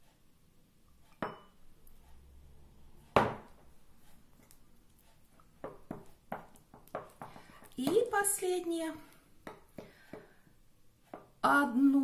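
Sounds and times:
metal spoon clinking ceramic bowl: 1.1 - 1.6
kitchenware knocking on table: 3.2 - 3.5.

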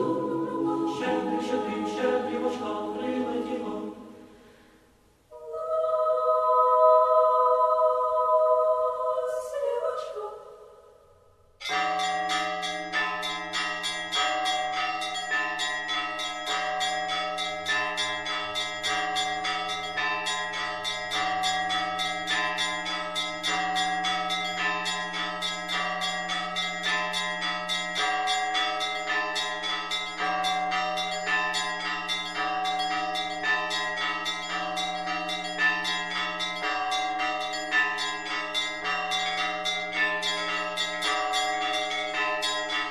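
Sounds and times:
bells pealing: 0.0 - 4.2, 11.6 - 42.9
person singing: 0.0 - 4.2.

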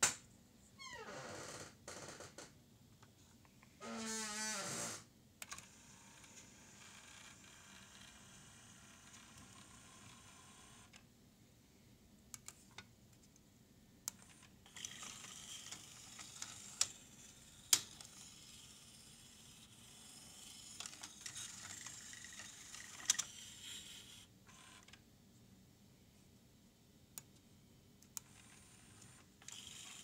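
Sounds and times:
small motor whirring through gears: 14.7 - 24.7, 28.3 - 30.0.

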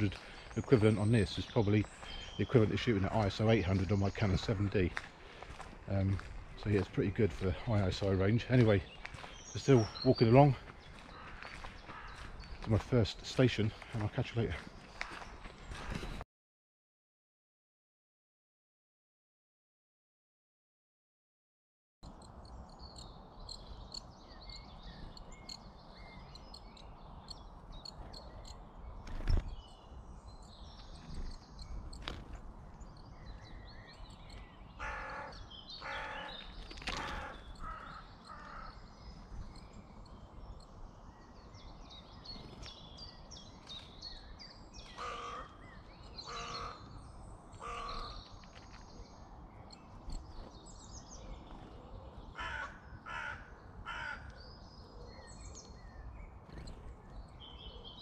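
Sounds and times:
small birds chirping: 0.0 - 16.2, 22.0 - 58.0
large bird loud calls: 7.5 - 12.7, 22.1 - 40.6, 41.6 - 58.0.

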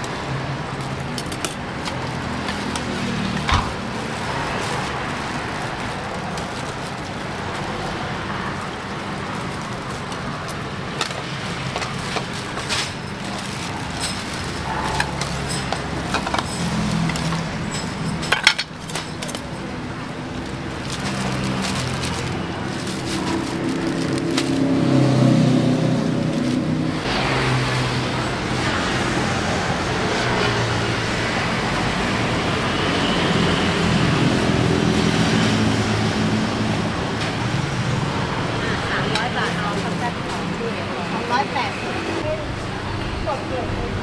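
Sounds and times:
street traffic: 0.0 - 44.0
vehicle engine: 0.0 - 44.0
sharp clinks and clatters: 11.9 - 23.9.

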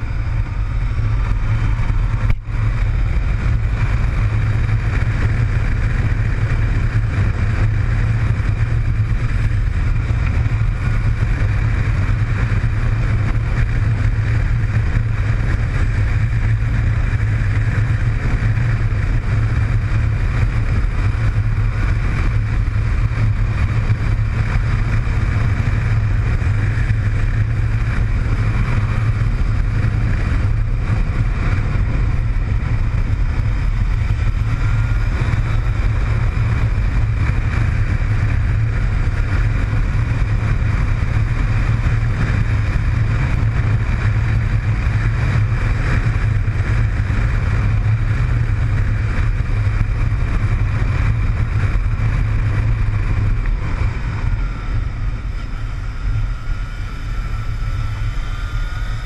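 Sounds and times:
motorcycle engine running: 0.0 - 59.0
wind rushing over microphone: 0.0 - 59.0.

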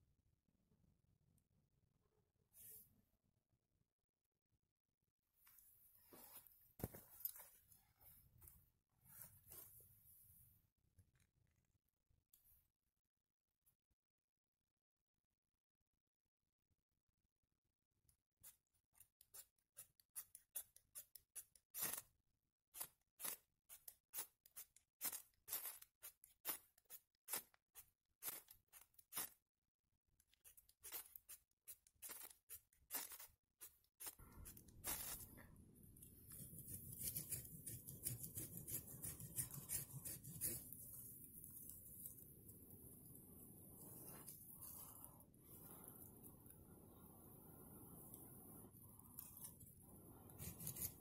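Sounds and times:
knife scraping a stick: 19.3 - 22.1, 22.8 - 29.4, 30.3 - 35.4, 36.3 - 42.2, 50.3 - 51.0.

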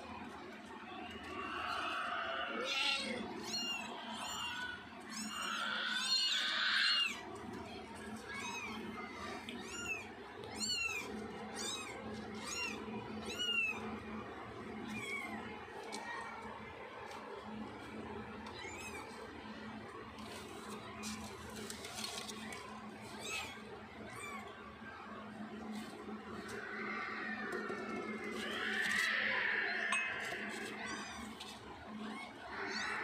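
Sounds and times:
kittens mewing: 1.7 - 7.2.

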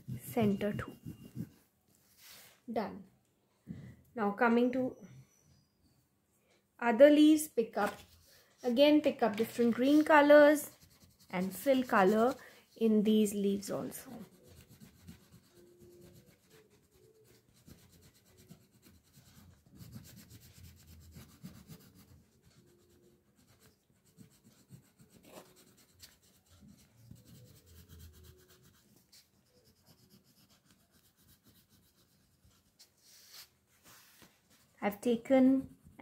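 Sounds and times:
crayon rubbing on paper: 0.0 - 2.6, 8.1 - 34.3.

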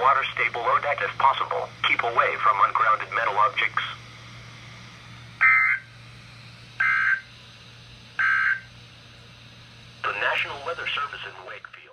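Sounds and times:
faint steady hum: 0.0 - 11.9
warbling digital data tones: 5.4 - 5.9, 6.8 - 7.3, 8.2 - 8.7.

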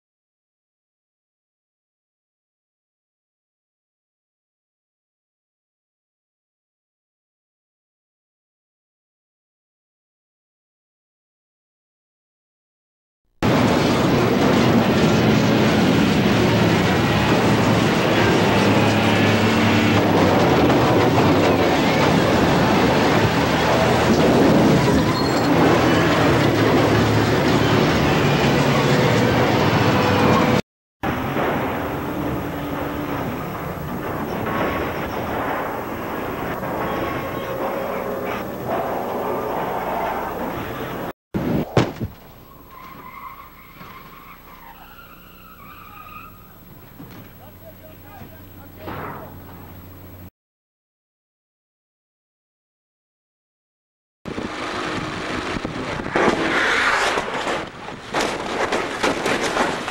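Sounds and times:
van crashing heavy impacts: 13.4 - 28.4, 29.1 - 44.7, 54.3 - 59.9
car scraping along pavement: 13.4 - 48.4, 54.3 - 59.9
vehicle rumble: 13.4 - 50.3, 54.3 - 59.9
wavering squeal: 24.8 - 26.2, 42.4 - 46.9.

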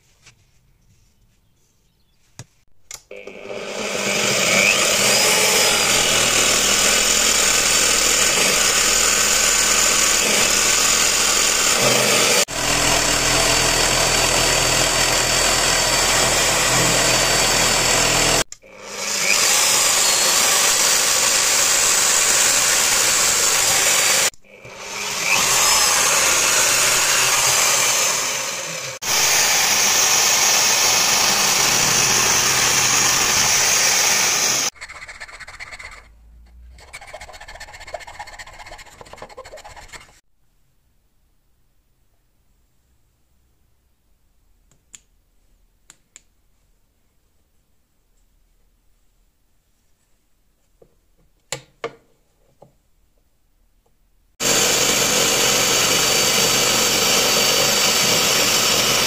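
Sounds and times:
electric drill running: 3.1 - 34.7, 54.4 - 59.0.

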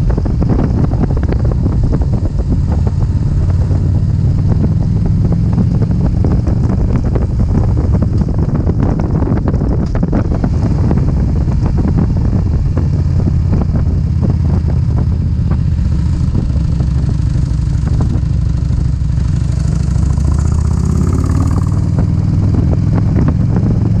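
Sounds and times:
motorcycle engine running: 0.0 - 24.0
wind buffeting microphone: 0.0 - 24.0.

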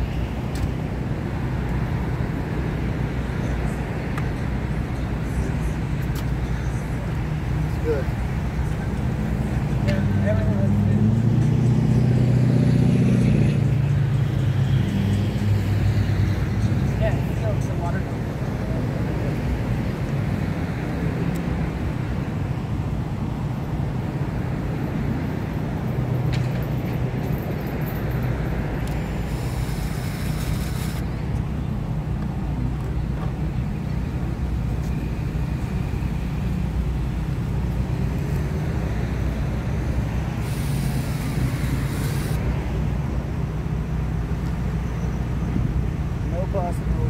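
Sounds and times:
engine droning: 0.0 - 47.0
cordless drill running: 29.3 - 31.0, 40.4 - 42.4.

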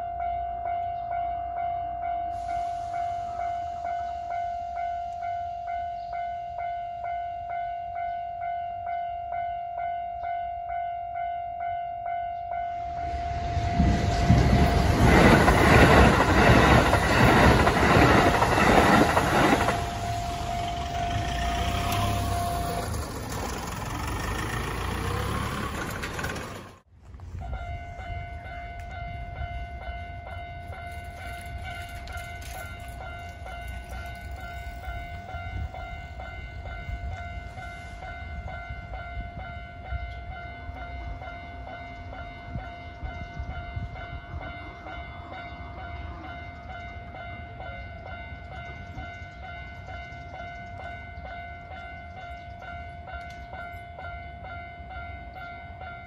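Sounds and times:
level-crossing warning bell: 0.0 - 56.0
train rushing past: 2.3 - 5.8, 12.5 - 26.9
wheels clicking over rail joints: 14.3 - 27.6, 28.4 - 38.9, 46.4 - 56.0.

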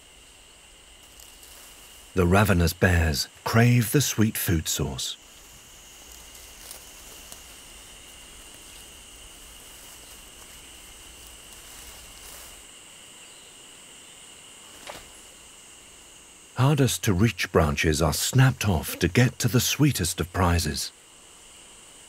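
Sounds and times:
cicadas droning: 0.0 - 22.0
faint ticks: 5.4 - 12.6.

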